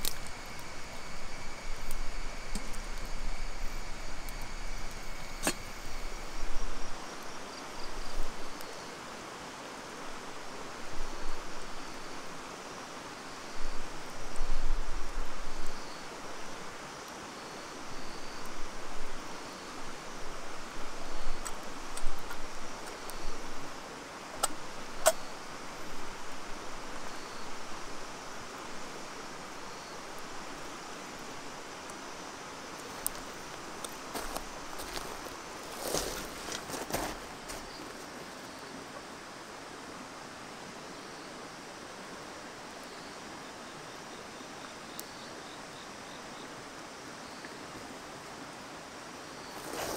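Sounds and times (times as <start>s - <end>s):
campfire crackling and popping: 0.0s - 6.4s, 20.7s - 23.7s, 24.3s - 27.2s, 27.9s - 38.1s
steady rushing hiss: 0.0s - 49.9s.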